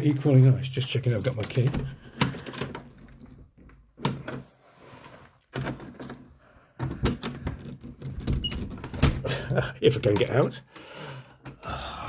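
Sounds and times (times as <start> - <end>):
keys jangling: 1.0 - 3.2.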